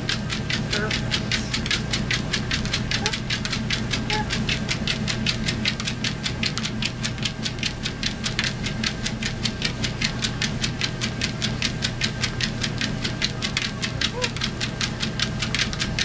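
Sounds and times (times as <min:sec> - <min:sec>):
dog paws clicking on belt: 0:00.0 - 0:16.0
treadmill motor hum: 0:00.0 - 0:16.0.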